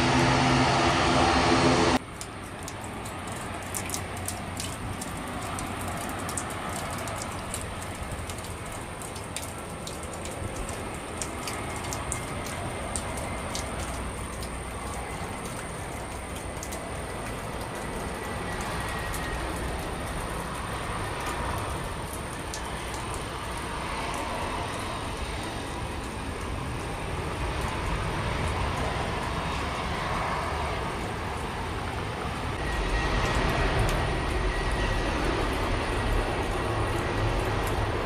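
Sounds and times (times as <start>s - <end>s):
jet engines landing: 0.0s - 38.0s
jet engines takeoff roar: 0.0s - 38.0s.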